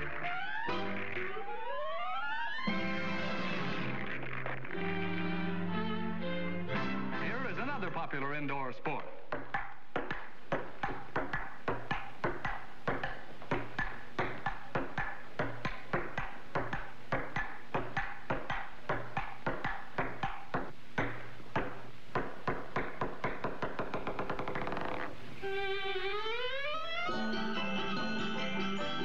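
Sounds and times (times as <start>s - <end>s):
ping-pong ball clicking: 9.3s - 24.9s.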